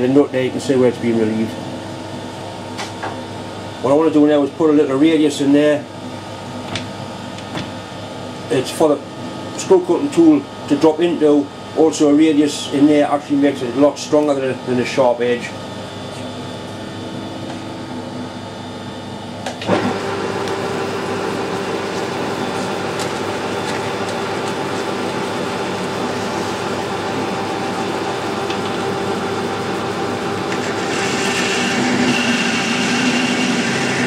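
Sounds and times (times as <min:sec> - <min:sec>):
lathe running hum: 0:00.0 - 0:34.0
tool cutting steel hiss and whine: 0:30.6 - 0:34.0.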